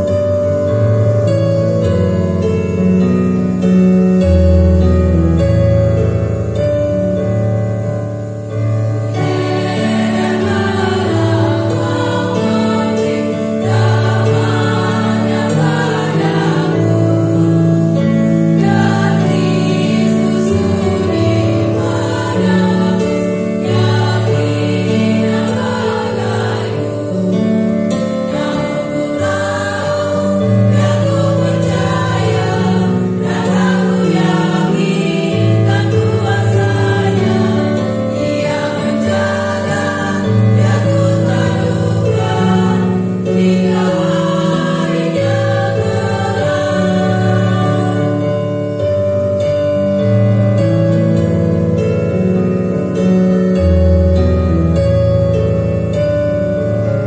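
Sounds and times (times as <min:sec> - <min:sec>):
women's group singing a hymn: 0:09.1 - 0:49.0.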